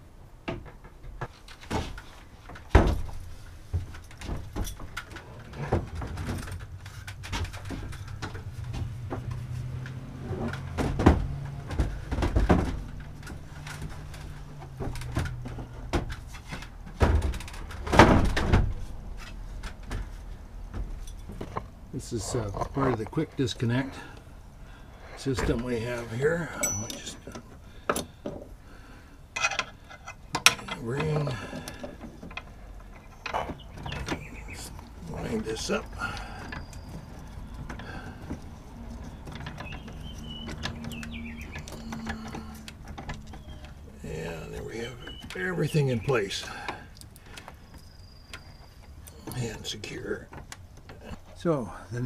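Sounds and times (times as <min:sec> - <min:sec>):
wooden knocks and thumps: 0:00.4 - 0:21.8, 0:29.4 - 0:45.4
metal chain clinking: 0:03.9 - 0:05.4, 0:20.9 - 0:22.6, 0:26.2 - 0:27.4.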